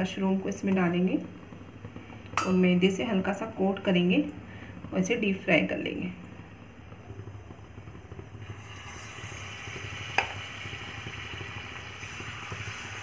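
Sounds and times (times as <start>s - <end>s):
low steady hum: 0.0s - 13.0s
batter sizzling in hot oil: 7.1s - 13.0s.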